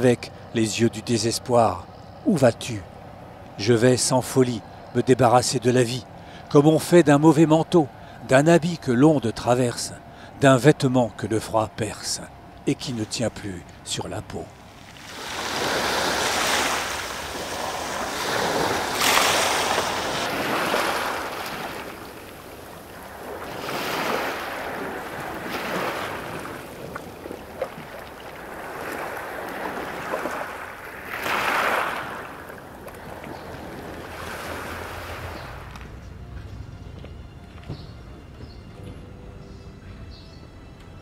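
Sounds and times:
waves washing on a shore: 13.1s - 35.8s.

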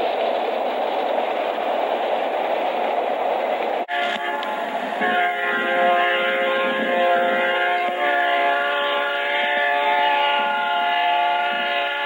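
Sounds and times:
freight train rolling past: 0.0s - 12.0s
locomotive horn: 3.9s - 12.0s.

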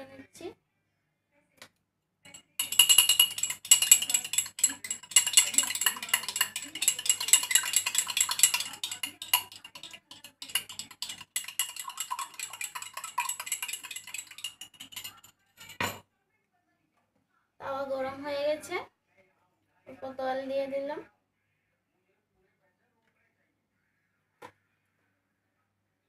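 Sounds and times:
utensil clinking against glass: 2.3s - 16.0s.

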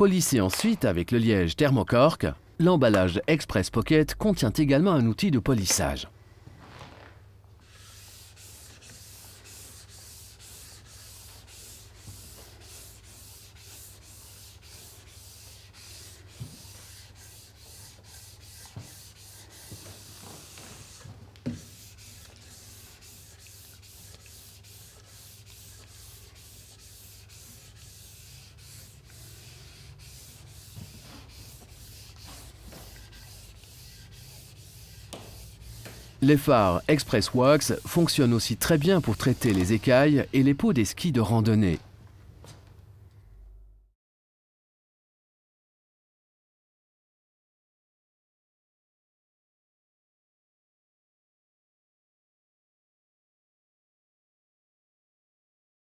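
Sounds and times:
cork rubbing on ski base: 7.6s - 39.9s.

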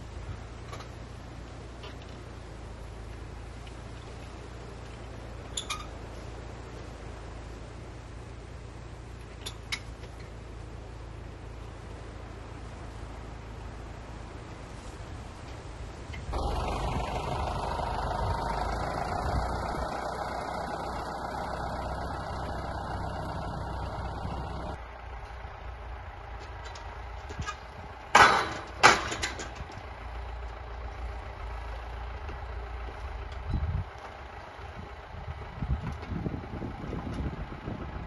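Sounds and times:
tractor engine running: 0.0s - 38.0s
sharp knocks: 28.1s - 29.6s.

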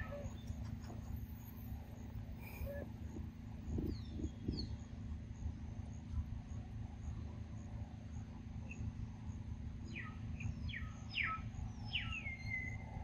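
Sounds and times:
steady low rumble: 0.0s - 13.0s
faint high chirp: 9.9s - 13.0s.

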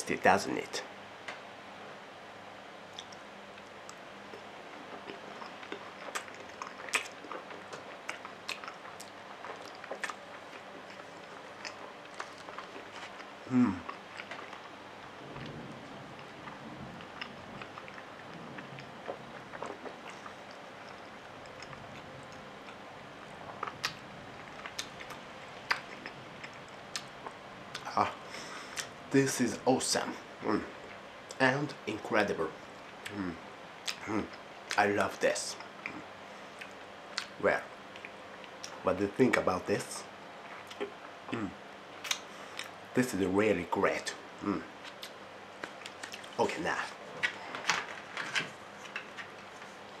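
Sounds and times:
wet mouth clicks and smacks: 2.9s - 13.2s, 23.6s - 24.0s, 42.0s - 42.8s, 44.8s - 46.4s
person chewing food: 2.9s - 29.0s, 35.6s - 38.8s, 40.4s - 42.8s, 44.4s - 50.0s.

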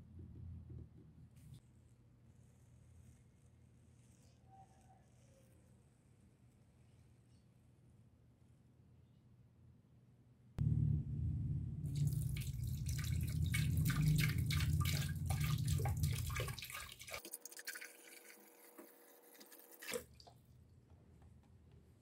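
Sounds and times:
water splashing into aquarium: 11.9s - 20.4s.

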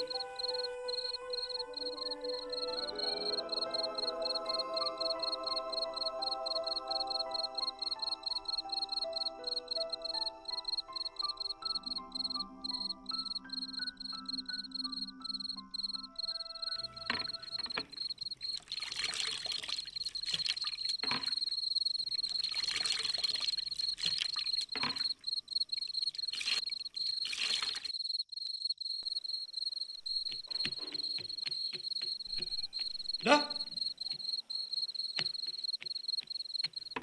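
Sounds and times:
crickets chirping: 0.0s - 37.0s
water splashing and pouring: 18.4s - 21.6s, 22.2s - 25.3s, 25.9s - 28.0s.

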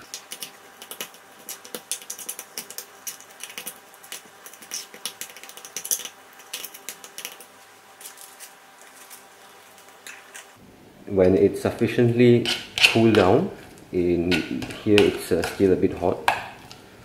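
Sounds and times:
metal spoon scraping a saucepan: 12.3s - 13.5s, 14.1s - 15.8s.

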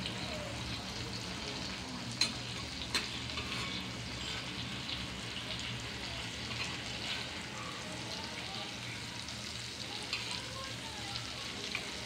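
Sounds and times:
eggs sizzling in oil: 0.0s - 12.0s
spatula scraping a pan: 2.2s - 4.8s, 6.4s - 7.5s.

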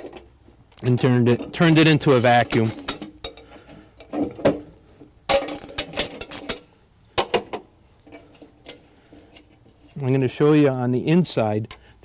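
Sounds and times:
metal parts clinking and clanking: 1.3s - 4.5s, 5.3s - 9.6s.

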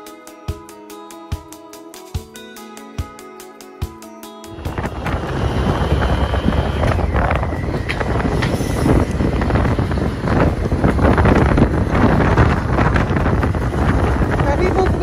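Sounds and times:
road and engine rumble: 4.5s - 15.0s
wind buffeting microphone: 4.5s - 15.0s.

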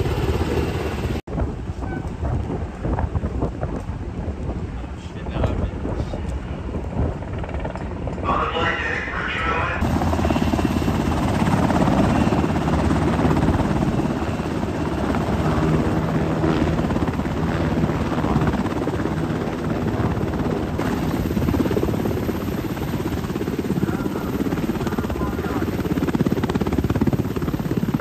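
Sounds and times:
helicopter rotor and engine drone: 0.0s - 28.0s.

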